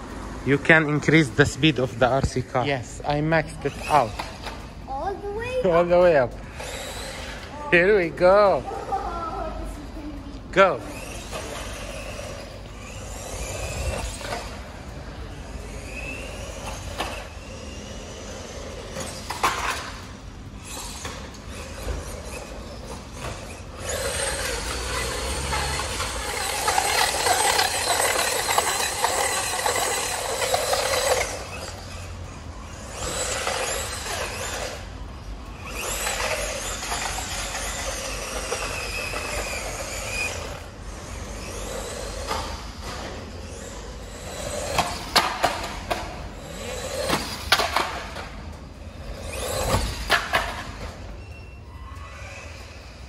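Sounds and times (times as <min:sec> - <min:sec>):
electric motor whining: 0:10.2 - 0:53.0
tyres squealing on paving: 0:20.6 - 0:48.2.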